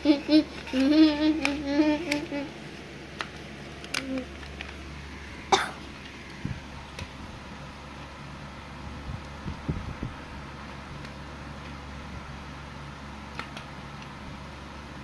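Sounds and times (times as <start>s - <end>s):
person humming a tune: 0.0s - 2.6s.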